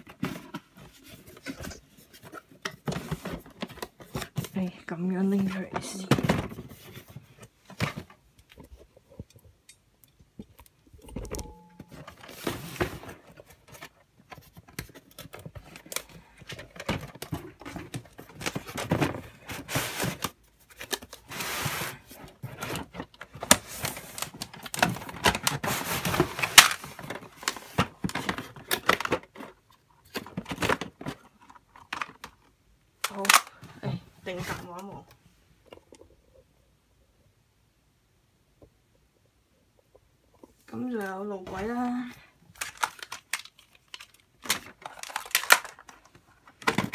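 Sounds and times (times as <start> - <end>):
cardboard packaging scraping: 11.3 - 29.4
plastic track pieces clattering: 42.5 - 46.9.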